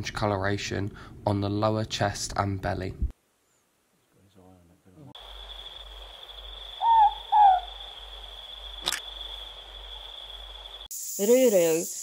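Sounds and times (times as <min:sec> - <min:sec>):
owl two-note hoot: 0:06.8 - 0:07.8
sharp click: 0:08.8 - 0:09.1.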